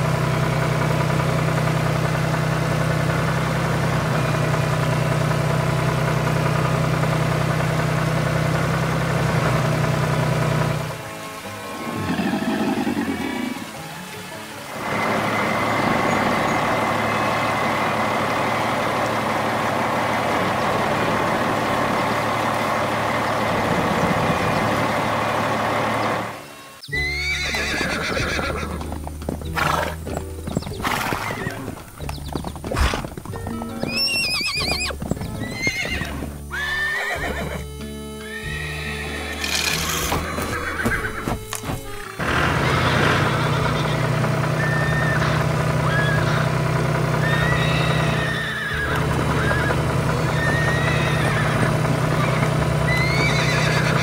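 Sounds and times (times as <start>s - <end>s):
horse neighing: 11.7s - 13.8s, 26.9s - 30.0s, 30.8s - 46.6s, 47.2s - 54.0s
simple background tune: 26.3s - 42.2s
hoof clip-clops: 27.3s - 46.5s, 47.3s - 54.0s.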